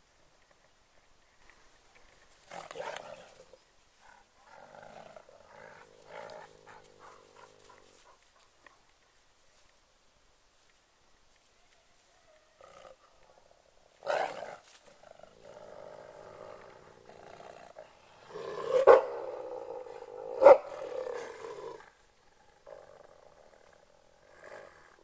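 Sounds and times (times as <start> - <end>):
wolves growling: 2.5 - 8.2, 12.6 - 25.0.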